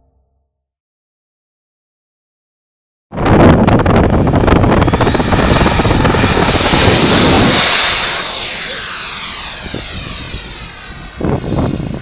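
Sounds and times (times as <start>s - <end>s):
model jet fan roaring: 3.3s - 12.0s.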